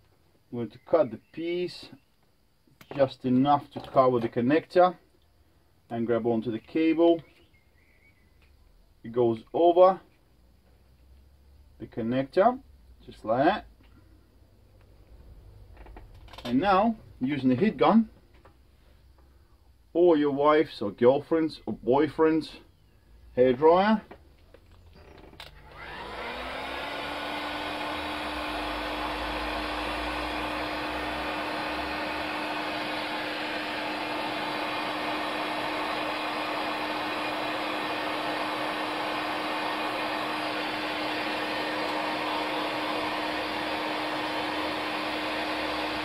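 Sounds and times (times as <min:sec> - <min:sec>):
heat gun motor whine: 0:24.8 - 0:46.0
blowing air with steady hum: 0:25.6 - 0:46.0.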